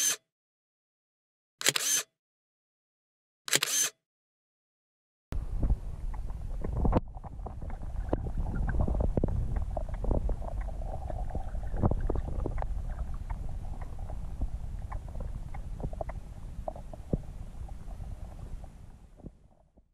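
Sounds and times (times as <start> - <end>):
faint even hum: 5.4 - 19.6
underwater river rumble: 5.4 - 19.9
underwater clicks and ticks: 5.6 - 19.8.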